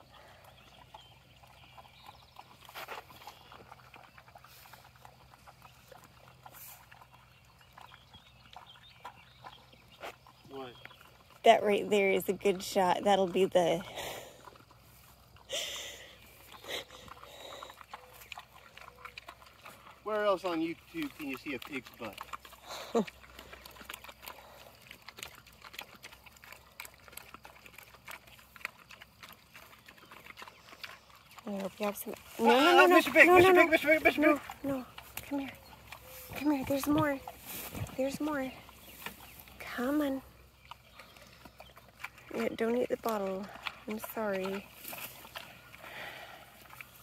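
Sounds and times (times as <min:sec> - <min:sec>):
pig breathy puffs: 0:00.0 - 0:01.1, 0:02.4 - 0:08.0, 0:13.8 - 0:20.0, 0:22.2 - 0:31.4, 0:43.4 - 0:44.0, 0:45.1 - 0:47.0
pig chewing and crunching feed: 0:00.0 - 0:47.0.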